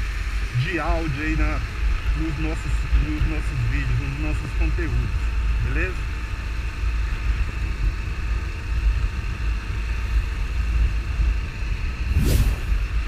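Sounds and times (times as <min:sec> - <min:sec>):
motorcycle engine running: 0:00.0 - 0:13.0
wind rumble on microphone: 0:00.0 - 0:13.0
short whoosh: 0:12.0 - 0:13.0.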